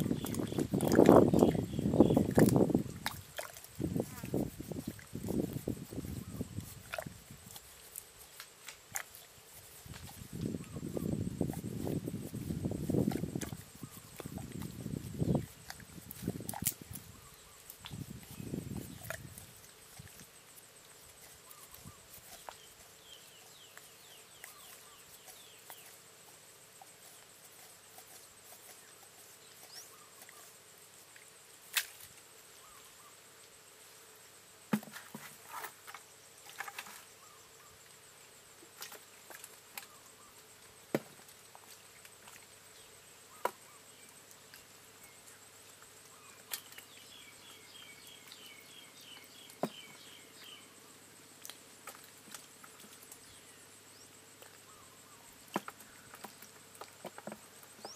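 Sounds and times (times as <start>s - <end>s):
faint insect drone: 0.0s - 57.9s.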